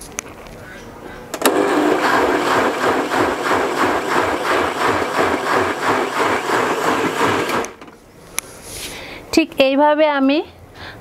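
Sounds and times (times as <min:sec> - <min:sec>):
electric blender running: 0:01.4 - 0:07.8.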